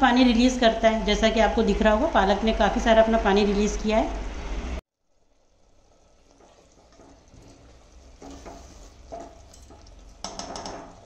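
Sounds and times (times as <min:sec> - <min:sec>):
spatula stirring wet food: 0:05.9 - 0:11.0
spatula scraping metal pot: 0:08.2 - 0:09.9.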